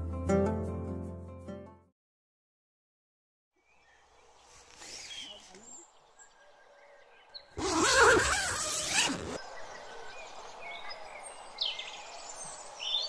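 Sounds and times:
bird chirps: 0:03.6 - 0:13.0
tent zipper opening: 0:07.6 - 0:09.4.

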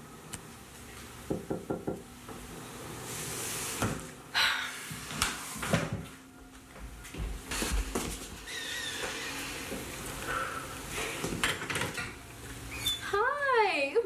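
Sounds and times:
knocking on wooden door: 0:01.3 - 0:02.0.

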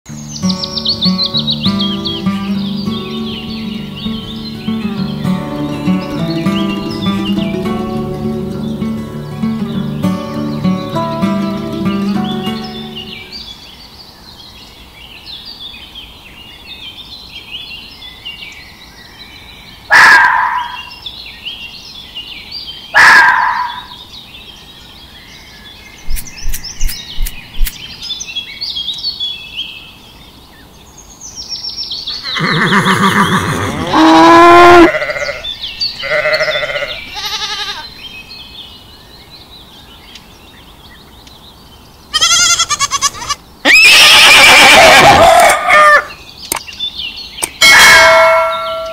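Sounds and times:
faint bird chirping: 0:00.1 - 0:43.6
goat and sheep bleating: 0:33.0 - 0:38.0, 0:42.1 - 0:45.9.

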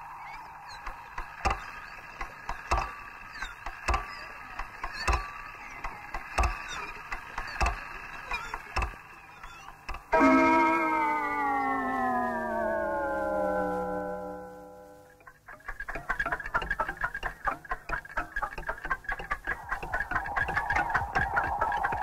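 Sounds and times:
sharp knocks: 0:00.8 - 0:07.8, 0:08.6 - 0:10.4
film hiss: 0:09.0 - 0:15.2
steady hum: 0:09.8 - 0:15.3.

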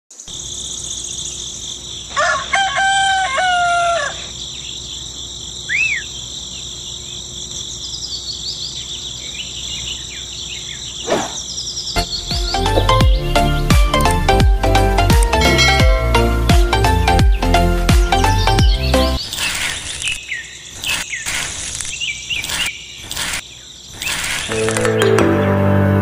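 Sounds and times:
bird chirp: 0:00.1 - 0:02.4, 0:04.0 - 0:14.4, 0:17.0 - 0:25.2
insects droning: 0:00.1 - 0:25.0
rooster crowing: 0:02.1 - 0:04.4
music: 0:12.0 - 0:19.2, 0:24.5 - 0:26.0.

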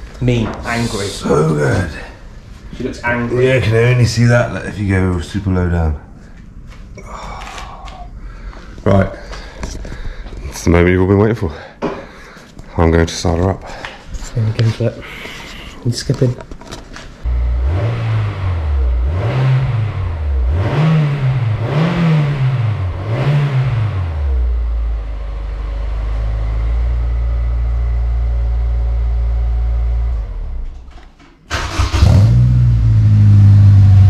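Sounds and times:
car engine revving: 0:17.3 - 0:30.6, 0:31.5 - 0:34.0
car engine starting: 0:17.3 - 0:30.8, 0:31.5 - 0:34.0
car engine idling: 0:24.0 - 0:30.6.

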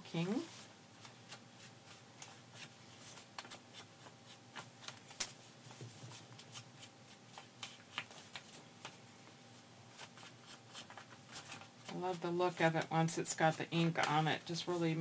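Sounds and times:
paper rustling: 0:09.9 - 0:12.8.

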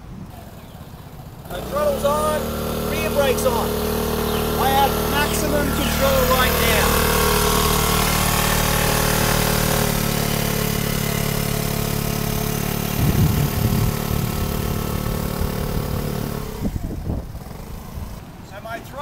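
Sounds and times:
scooter engine running: 0:00.0 - 0:18.4
low rumble: 0:12.8 - 0:18.2.

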